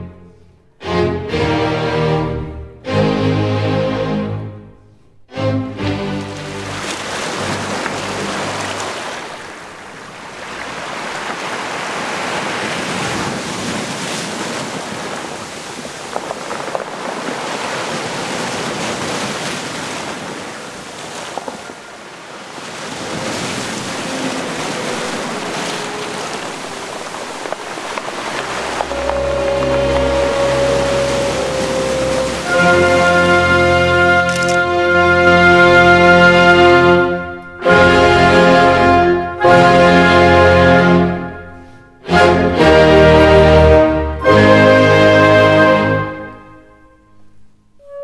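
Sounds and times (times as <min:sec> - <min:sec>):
music: 0:00.0 - 0:08.7, 0:28.3 - 0:48.0
waves breaking on pebbles: 0:06.3 - 0:34.9.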